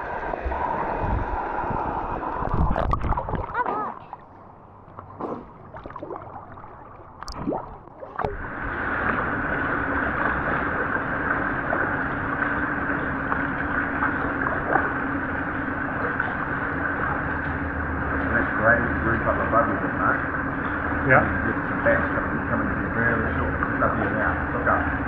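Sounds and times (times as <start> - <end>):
boat motor running: 0.0 - 25.0
water noise: 0.0 - 25.0.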